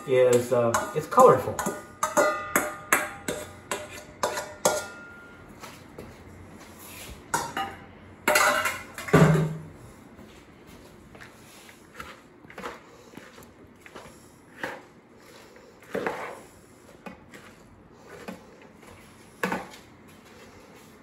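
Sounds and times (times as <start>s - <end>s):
spoon scraping plastic bowl: 11.9s - 19.8s.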